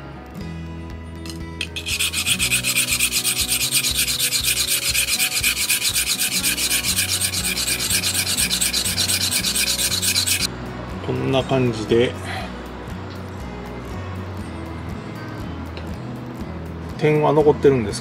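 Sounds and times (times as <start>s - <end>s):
steel blade rubbing on whetstone: 1.6s - 10.5s.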